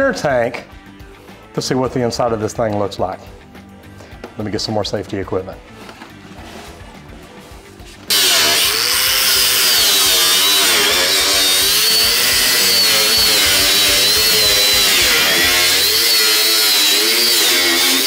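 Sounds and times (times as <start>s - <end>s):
angle grinder cutting steel: 8.1s - 18.0s.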